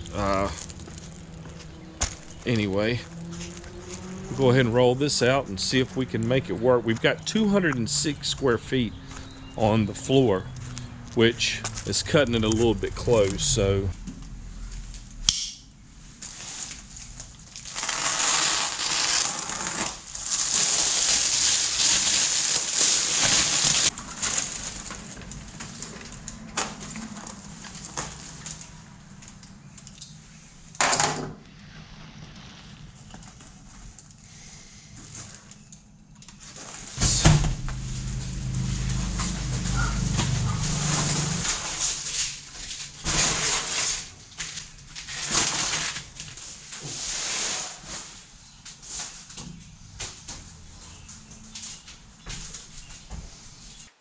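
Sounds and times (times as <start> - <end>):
low rumble: 0.0 - 17.5, 37.0 - 42.1
sharp click: 15.3 - 15.6
plastic wrapper crinkling: 16.2 - 25.8.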